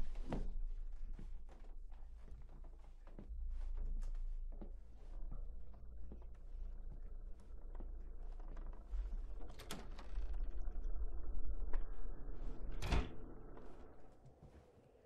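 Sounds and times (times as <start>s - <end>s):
low rumbling drone: 2.9s - 14.2s.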